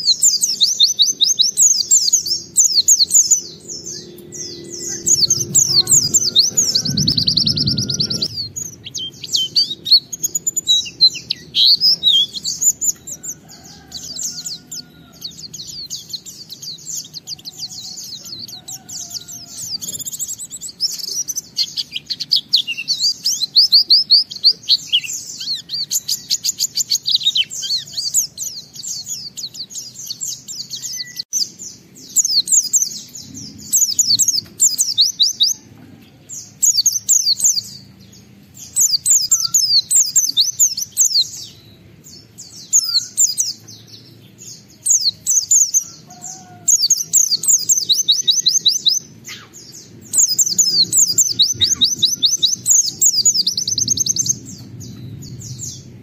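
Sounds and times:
bird twittering song: 0:00.0 - 0:56.0
faint low hum: 0:03.2 - 0:12.0.

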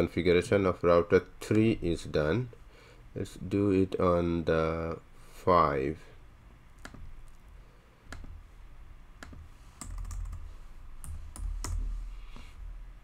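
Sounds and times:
keyboard typing: 0:09.2 - 0:11.9.

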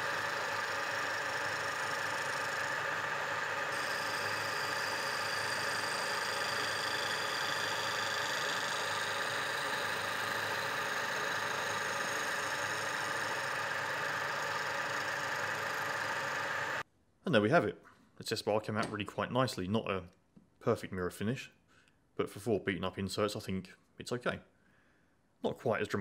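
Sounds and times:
milling machine cutting metal: 0:00.0 - 0:16.8.

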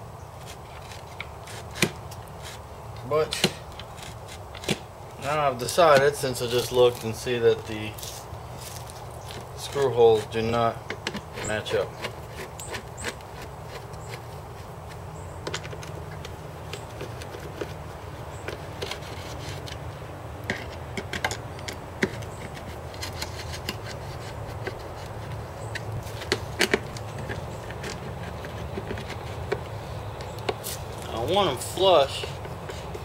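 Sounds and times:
metal clicks and scrapes: 0:08.0 - 0:31.1.

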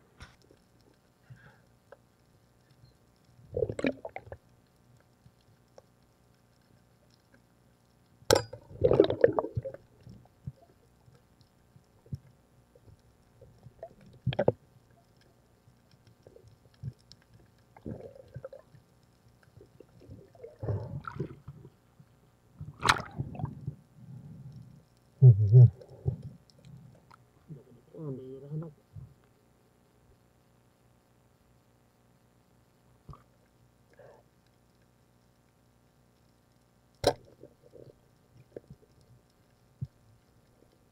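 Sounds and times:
muffled underwater bubbling: 0:03.4 - 0:04.4, 0:08.3 - 0:10.8, 0:12.0 - 0:14.6, 0:17.8 - 0:18.8, 0:19.5 - 0:21.8, 0:22.6 - 0:29.1.

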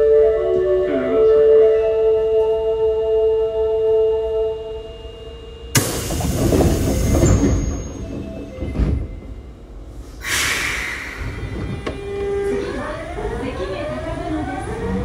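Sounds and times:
train rumbling: 0:05.7 - 0:15.0
sudden bang: 0:05.8 - 0:09.5
air hiss: 0:10.0 - 0:11.7.

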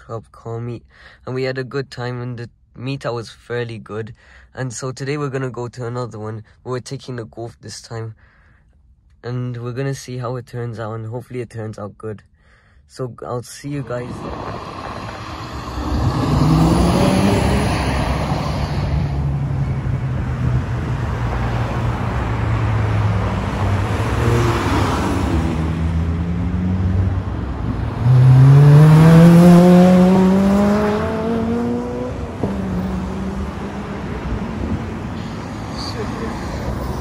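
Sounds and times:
engine revving up: 0:13.8 - 0:37.0
cars accelerating past: 0:13.9 - 0:37.0.

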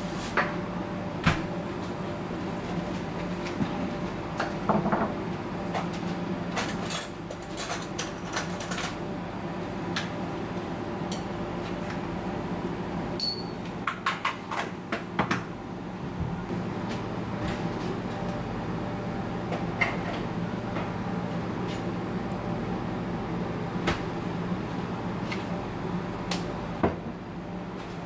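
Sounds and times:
hum of running equipment: 0:00.0 - 0:28.0.

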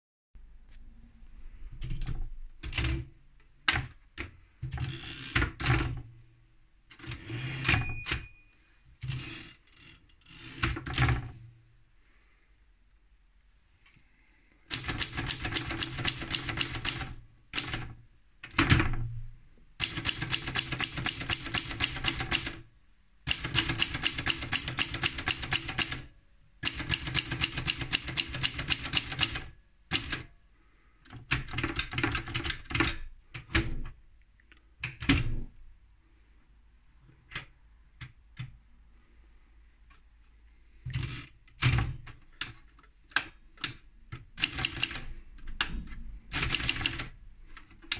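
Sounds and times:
manual typewriter keystrokes: 0:01.8 - 0:03.9, 0:14.7 - 0:19.0, 0:19.8 - 0:22.6, 0:23.3 - 0:30.3, 0:31.1 - 0:33.8, 0:40.9 - 0:47.2.

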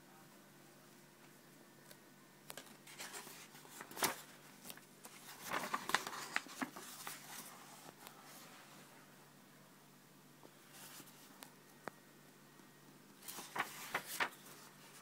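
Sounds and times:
book pages turning: 0:02.8 - 0:08.2, 0:13.2 - 0:15.0.

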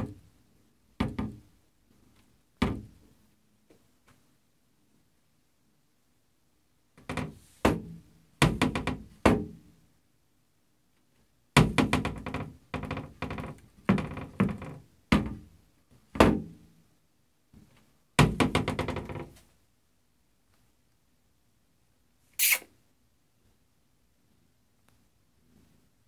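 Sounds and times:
cabinet door knocking and rattling: 0:07.0 - 0:09.5, 0:11.6 - 0:15.5, 0:18.2 - 0:19.4.

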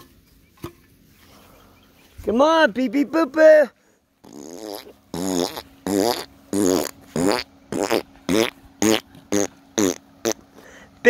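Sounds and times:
rough wavering vocal calls: 0:04.2 - 0:10.8.

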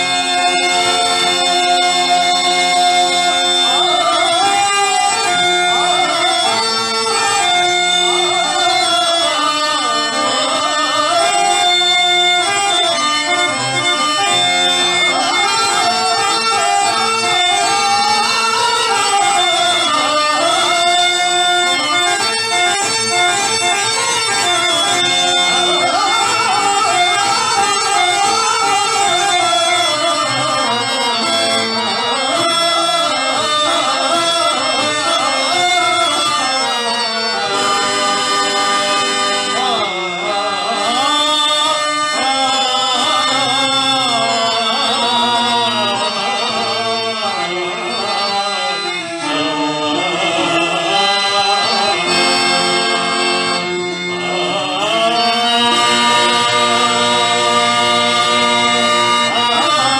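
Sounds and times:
harmonium tones: 0:00.0 - 0:59.9
man singing ornamented verse: 0:00.0 - 0:59.9.

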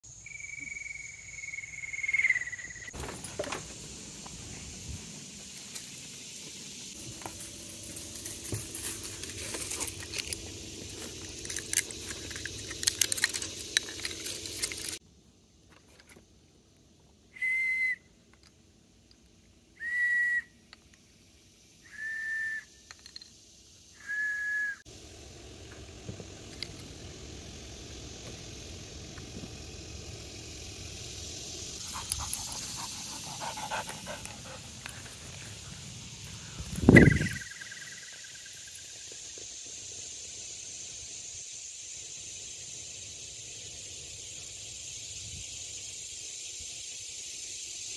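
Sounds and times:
steady outdoor hiss: 0:00.0 - 0:47.9
high whistle tones: 0:17.3 - 0:18.2, 0:19.8 - 0:20.6, 0:21.8 - 0:22.9, 0:23.9 - 0:24.8, 0:36.8 - 0:37.8.

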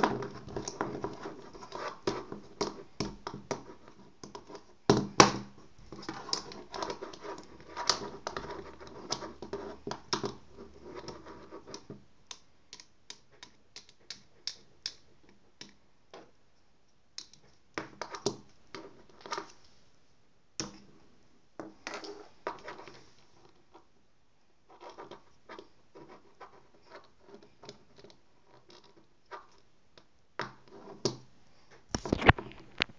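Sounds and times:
pens clicking and tapping: 0:06.0 - 0:15.8.

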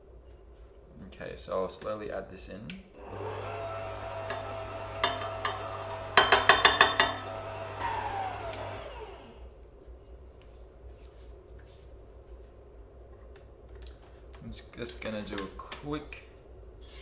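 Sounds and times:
motor spinning down whine: 0:03.0 - 0:06.2, 0:07.0 - 0:09.5
stand mixer motor humming: 0:03.0 - 0:09.4.

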